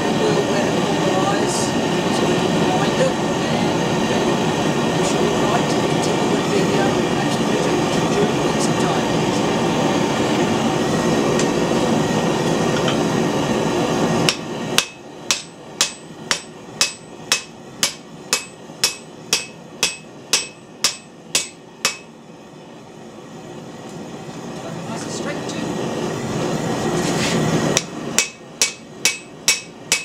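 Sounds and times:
hammer ringing on anvil: 14.3s - 22.1s, 28.2s - 30.0s.

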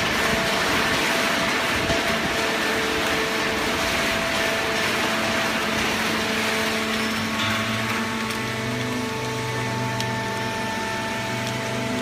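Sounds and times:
hum tones: 6.4s - 12.0s.

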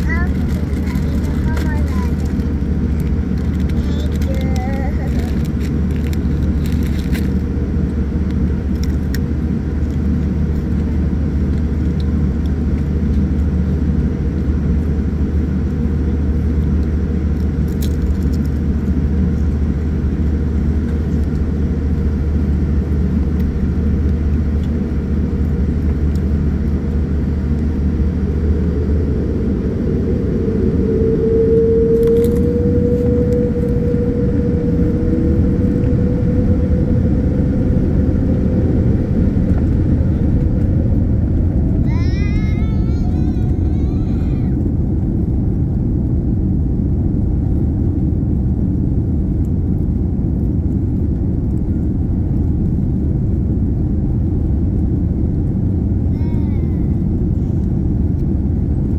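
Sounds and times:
jet engines spooling up: 0.0s - 51.6s
engine and airframe rumble: 0.0s - 58.9s.

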